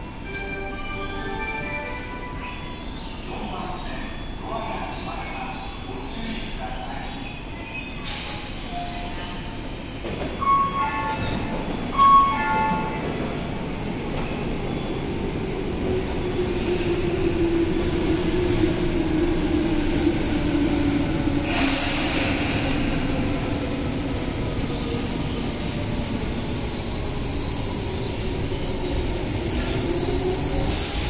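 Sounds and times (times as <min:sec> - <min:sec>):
train air hiss: 0:08.0 - 0:11.0, 0:16.4 - 0:18.8, 0:20.2 - 0:31.0
electric train hum: 0:08.5 - 0:31.0.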